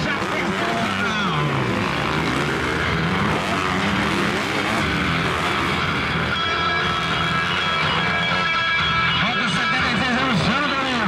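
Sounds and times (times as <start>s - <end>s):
dirt bike engines revving: 0.0s - 11.0s
music: 4.9s - 11.0s.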